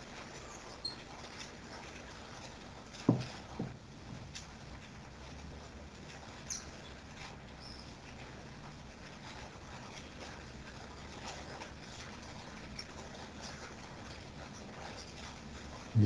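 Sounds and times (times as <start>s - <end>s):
ceramic mug knocking on desk: 3.1s - 3.8s.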